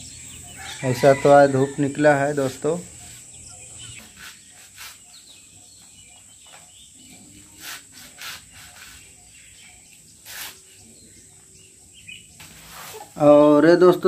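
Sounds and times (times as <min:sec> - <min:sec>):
high insect drone: 0:00.0 - 0:13.2
birds chirping: 0:00.0 - 0:14.0
leaves being cut: 0:10.2 - 0:10.6.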